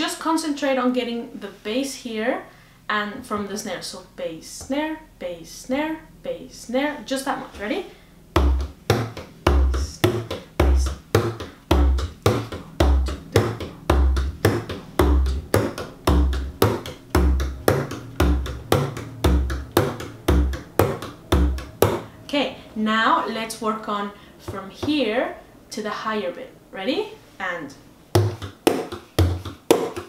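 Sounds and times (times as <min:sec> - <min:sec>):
frame drum played with a tipper: 0:08.4 - 0:22.0.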